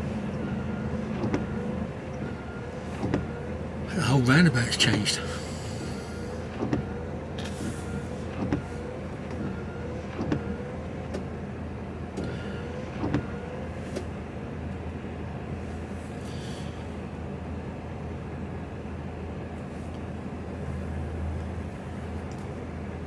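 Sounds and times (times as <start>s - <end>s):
truck diesel engine idling: 0.0s - 14.4s.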